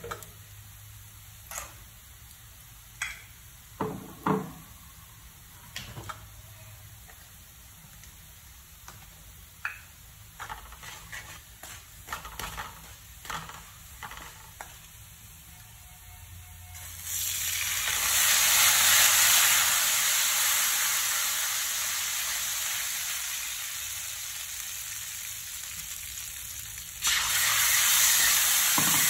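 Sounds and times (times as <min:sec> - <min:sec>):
spatula scraping wok: 0:10.4 - 0:14.8
garlic sizzling in oil: 0:16.6 - 0:29.0.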